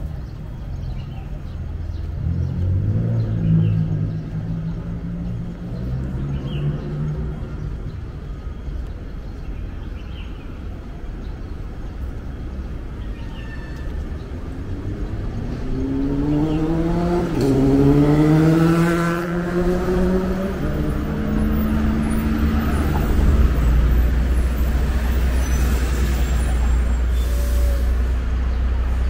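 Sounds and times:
street traffic rumble: 0.0s - 29.0s
vehicle engine accelerating: 1.9s - 7.9s, 14.5s - 27.2s.

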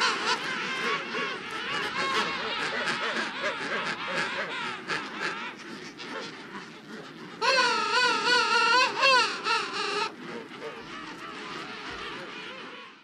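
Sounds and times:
loud wavering penguin call: 0.0s - 13.0s
penguins calling: 0.0s - 13.0s.

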